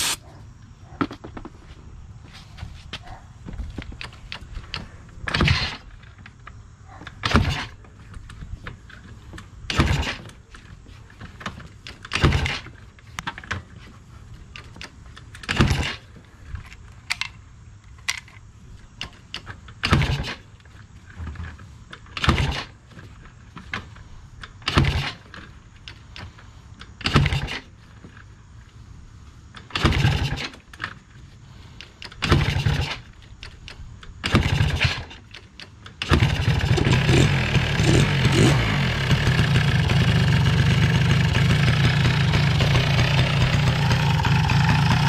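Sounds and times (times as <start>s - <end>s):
engine starter cranking: 29.6s - 30.7s, 32.1s - 45.0s.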